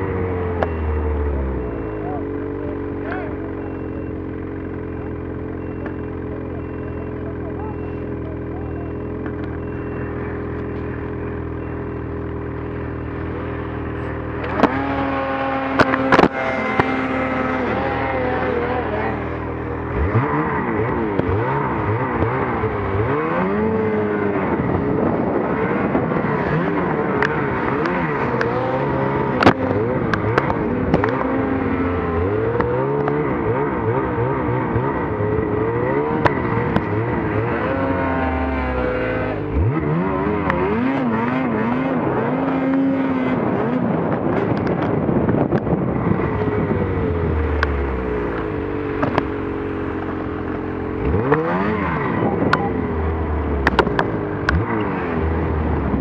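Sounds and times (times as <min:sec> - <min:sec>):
other snowmobiles running: 0:00.0 - 0:56.0
snowmobile engine revving: 0:12.4 - 0:56.0.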